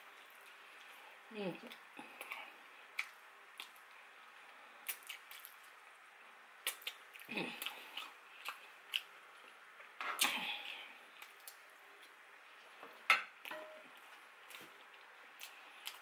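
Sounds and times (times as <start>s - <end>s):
chewing and wet mouth clicks: 3.0s - 3.8s, 4.8s - 5.7s, 6.6s - 9.1s.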